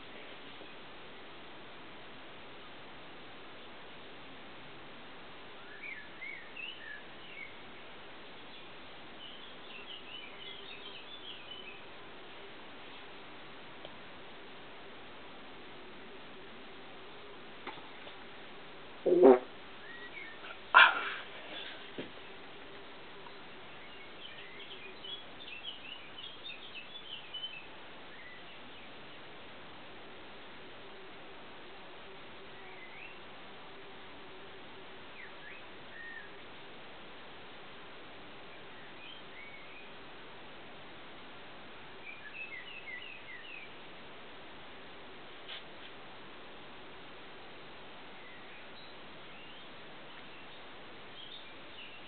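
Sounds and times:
steady hiss: 0:00.0 - 0:52.0
small birds chirping: 0:05.6 - 0:12.5, 0:19.8 - 0:29.4, 0:41.8 - 0:43.8, 0:48.0 - 0:52.0.

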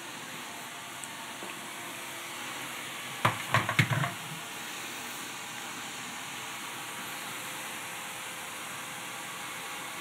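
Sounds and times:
steady background hiss: 0:00.0 - 0:10.0
graphics card knocking on desk: 0:03.2 - 0:04.2.

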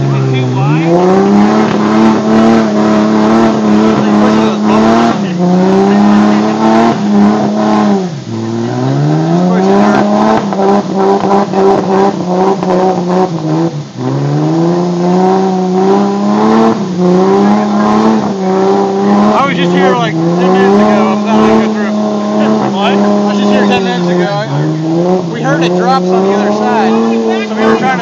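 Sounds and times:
engine revving hard: 0:00.0 - 0:28.0.

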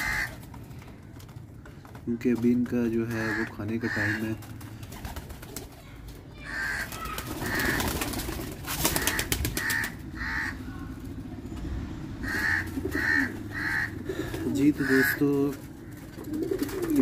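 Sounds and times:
pigeons cooing: 0:03.1 - 0:11.1, 0:12.2 - 0:17.0.

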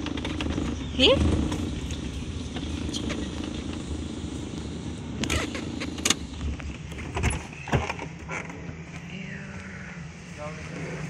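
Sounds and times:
sharp knocks and rattles: 0:00.0 - 0:08.8
car driving heard from inside: 0:00.0 - 0:11.0.

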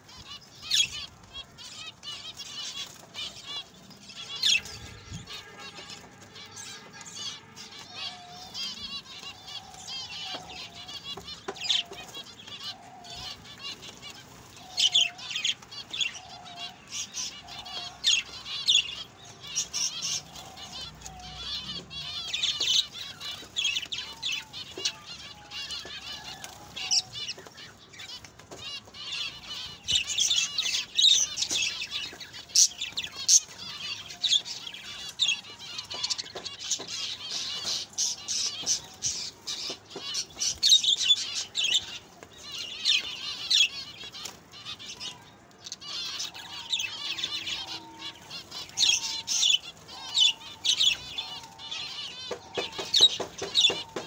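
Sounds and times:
finches calling: 0:29.1 - 0:54.0.

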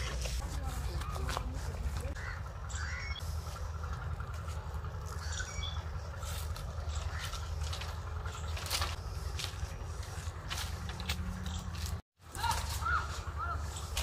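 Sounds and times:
steady low rumble: 0:00.0 - 0:12.0
bird chirps: 0:02.2 - 0:03.2, 0:05.1 - 0:09.4.

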